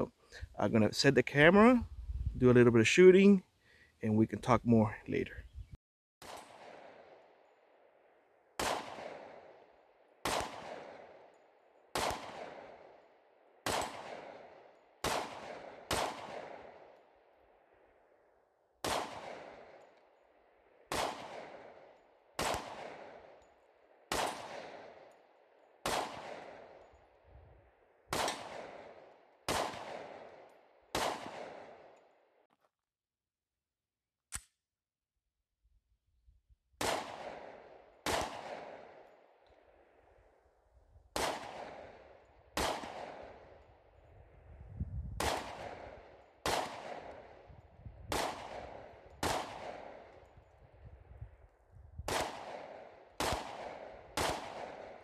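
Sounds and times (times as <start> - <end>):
pistol shots echoing: 6.2 - 17.3, 18.8 - 32.0, 36.8 - 40.0, 41.1 - 43.8, 45.2 - 47.5, 48.1 - 50.3, 52.1 - 55.0.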